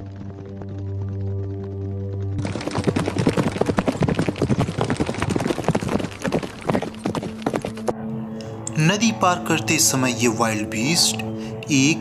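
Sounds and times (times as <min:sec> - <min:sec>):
herd of hooves stampeding: 0:00.0 - 0:08.0.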